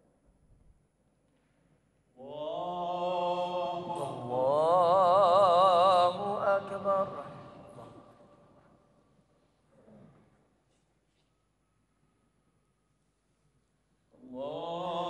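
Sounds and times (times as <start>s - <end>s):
man chanting: 2.3s - 8.2s.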